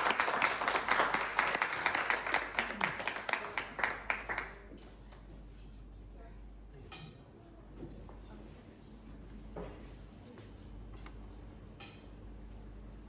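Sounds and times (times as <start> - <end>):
audience applauding: 0.0 - 4.7.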